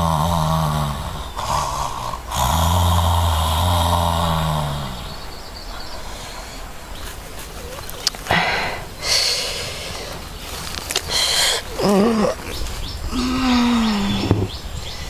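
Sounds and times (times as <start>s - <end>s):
man sighing and sniffing: 8.2s - 10.2s
man groaning: 11.7s - 14.3s.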